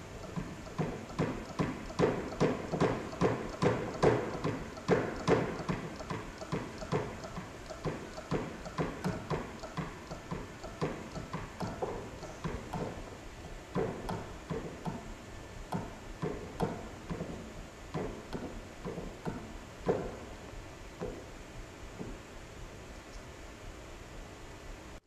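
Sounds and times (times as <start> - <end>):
hydraulic hand pump clicking: 0.2 - 13.1.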